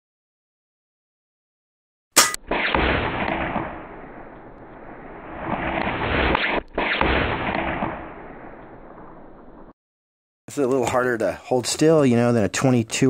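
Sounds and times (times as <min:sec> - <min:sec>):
air rifle shot: 0:02.2 - 0:09.7.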